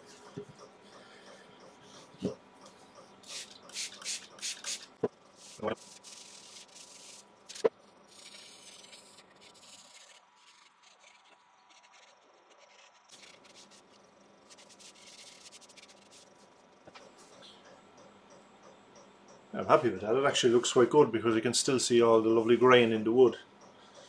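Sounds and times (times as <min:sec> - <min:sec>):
gloved hand rubbing wood bowl: 0:12.6 - 0:16.5.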